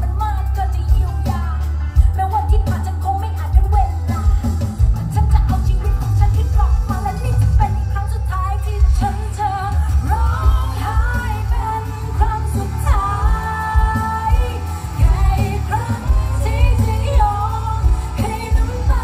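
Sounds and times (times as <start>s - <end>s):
band with heavy bass and drums: 0.0s - 19.0s
woman singing into microphone: 0.0s - 19.0s.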